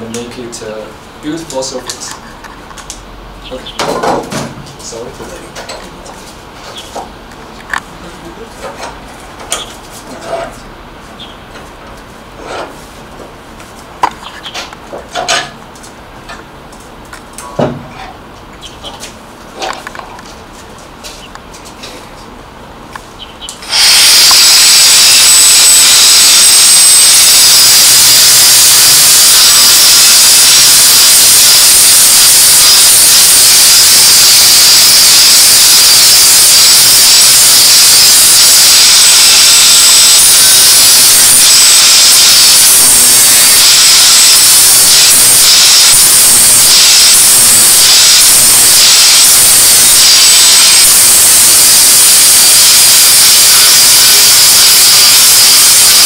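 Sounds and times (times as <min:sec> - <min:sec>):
angle grinder grinding metal: 0:23.6 - 0:56.0.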